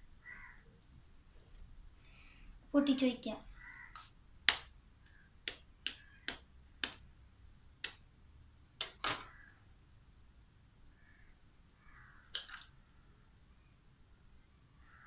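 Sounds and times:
knife tapping eggshell: 5.4 - 7.0.

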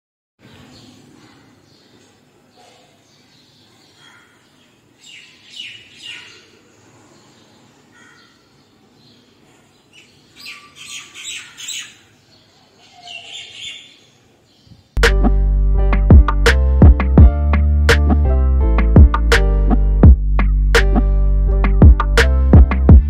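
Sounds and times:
birds chirping: 0.4 - 15.0.

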